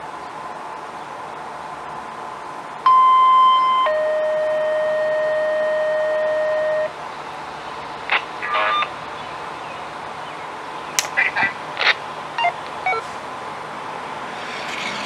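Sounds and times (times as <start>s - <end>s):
two-tone siren signal: 2.9s - 6.9s
short noise bursts: 8.1s - 9.0s.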